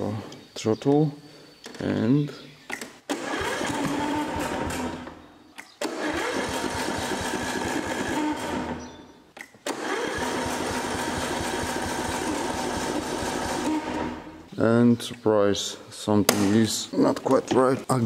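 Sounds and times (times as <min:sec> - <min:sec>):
engine cranked by electric starter: 0:03.1 - 0:05.2, 0:05.8 - 0:09.0, 0:09.6 - 0:14.5.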